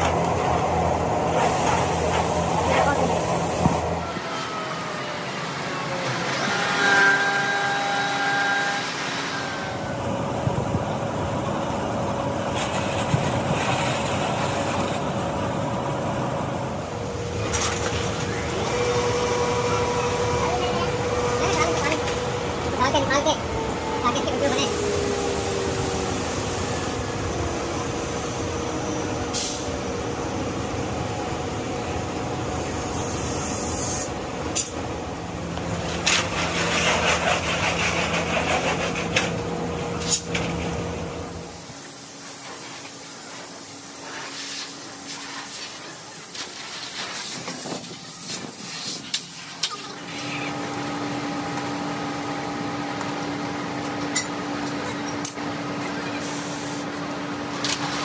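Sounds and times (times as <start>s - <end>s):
steady machine hum: 0.0s - 42.2s
compressed air hiss: 1.4s - 2.5s, 29.3s - 29.7s, 32.8s - 34.2s, 56.2s - 56.9s.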